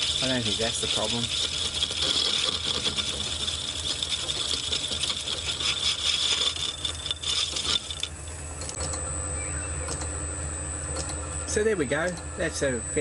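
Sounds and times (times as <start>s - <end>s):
lathe cutting steel with ringing: 0.0s - 8.1s.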